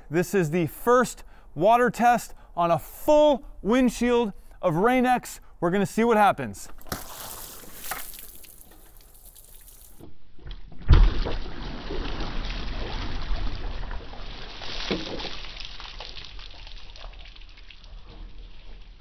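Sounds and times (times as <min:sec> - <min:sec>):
water streaming and dripping: 0:06.7 - 0:10.1, 0:11.2 - 0:19.0.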